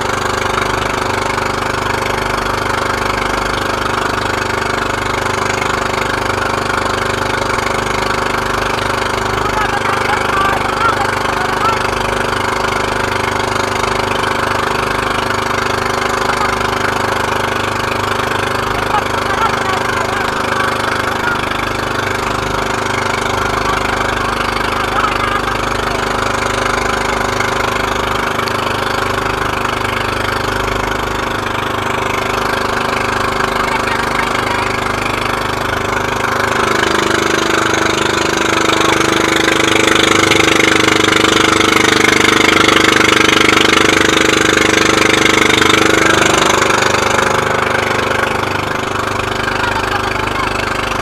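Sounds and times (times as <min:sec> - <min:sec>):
boat engine running: 0:00.0 - 0:51.0
droning tone: 0:00.0 - 0:51.0
water noise: 0:00.0 - 0:51.0.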